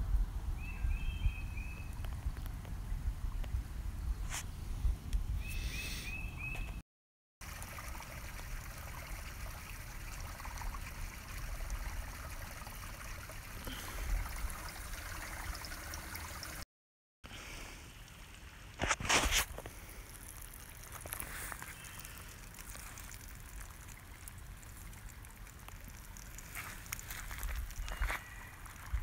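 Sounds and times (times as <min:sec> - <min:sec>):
bird chirping: 0:00.6 - 0:02.1, 0:05.4 - 0:06.8.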